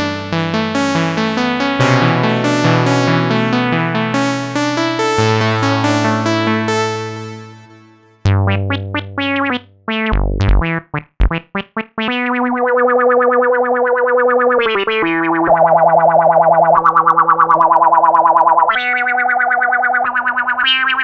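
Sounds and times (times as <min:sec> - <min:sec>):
synthesizer chords and bass: 0:00.0 - 0:21.0
punchy synth stabs: 0:01.0 - 0:12.4
wavering synth note: 0:01.3 - 0:10.0.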